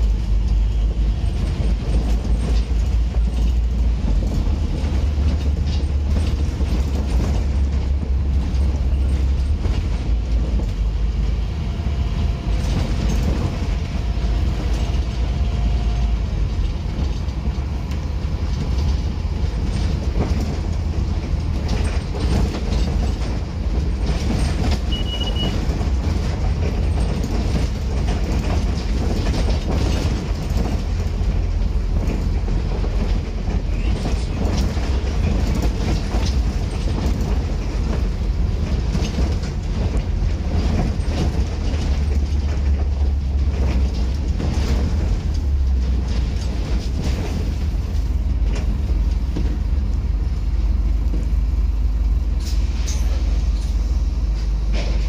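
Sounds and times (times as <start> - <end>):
bus body rattling: 0.0 - 55.0
bus diesel engine rumble: 0.0 - 55.0
short high beep: 24.9 - 25.6.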